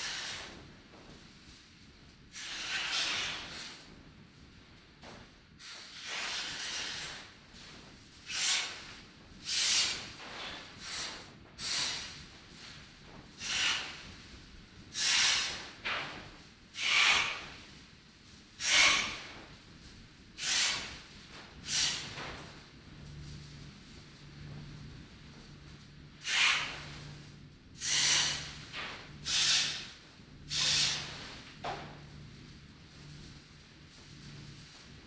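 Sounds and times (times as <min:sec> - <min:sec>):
breathy hissing bursts: 0:09.5 - 0:12.2, 0:13.4 - 0:14.0, 0:14.9 - 0:15.7, 0:18.6 - 0:19.3, 0:20.4 - 0:21.0, 0:21.6 - 0:22.2, 0:26.2 - 0:26.8, 0:27.8 - 0:31.4.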